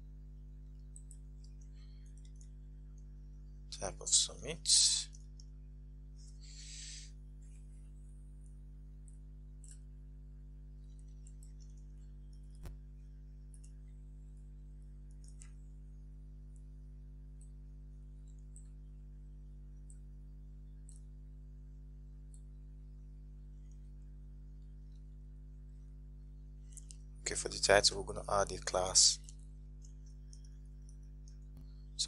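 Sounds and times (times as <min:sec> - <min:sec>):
low electrical hum: 0:00.0 - 0:32.0
computer keyboard clicks: 0:15.1 - 0:15.6.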